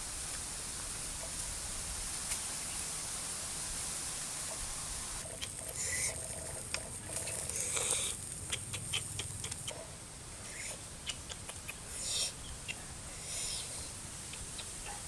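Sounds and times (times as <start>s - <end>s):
clicks and rustles of spit turning: 5.2s - 9.9s.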